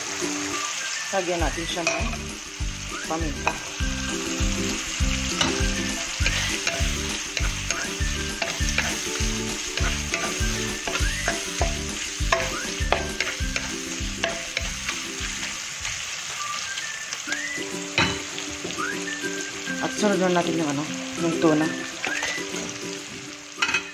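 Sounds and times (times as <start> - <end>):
food sizzling in hot oil: 0.0 - 23.9
wooden spatula scraping a wok: 5.3 - 16.0
spatula knocking on pan: 9.8 - 14.8.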